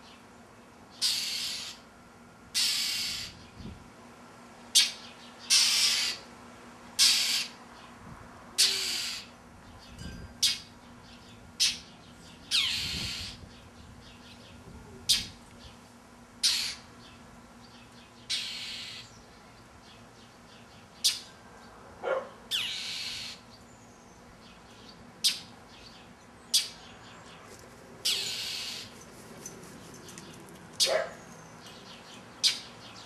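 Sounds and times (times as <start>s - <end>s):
bird harsh alarm calls: 0.9s - 1.8s, 2.6s - 3.5s, 4.7s - 6.3s, 7.0s - 7.6s, 8.6s - 9.4s, 11.6s - 13.5s, 16.4s - 17.2s, 18.2s - 19.2s, 21.0s - 21.3s, 22.5s - 23.5s, 25.2s - 25.5s, 26.5s - 26.9s, 28.0s - 29.0s, 30.8s - 33.0s.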